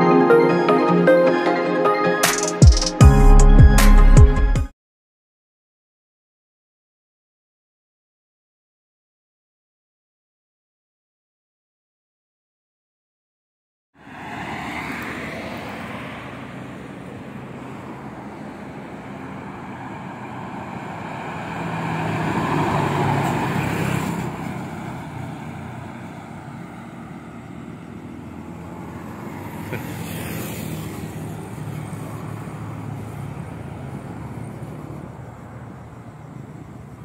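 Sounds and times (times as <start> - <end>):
coach bus passing: 14.0 - 37.0
motorcycle riding: 14.0 - 37.0
passing vehicle noise: 14.0 - 37.0.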